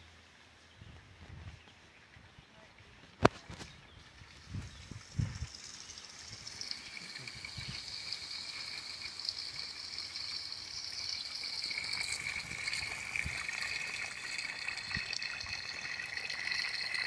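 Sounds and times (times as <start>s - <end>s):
waterfall splashing into pond: 4.4s - 17.0s.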